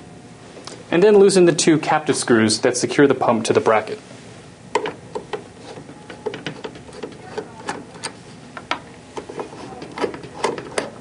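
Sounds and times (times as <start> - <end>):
screwdriver clicking on metal: 4.8 - 11.0.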